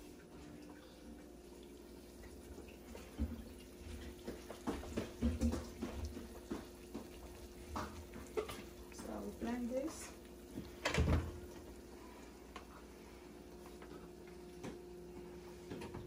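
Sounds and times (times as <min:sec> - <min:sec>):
water splashing in sink: 0:00.0 - 0:11.9.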